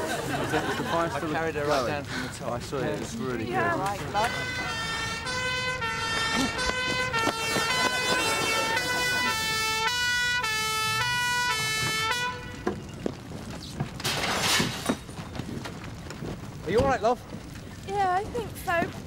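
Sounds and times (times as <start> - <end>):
two-tone siren: 4.1 - 12.7.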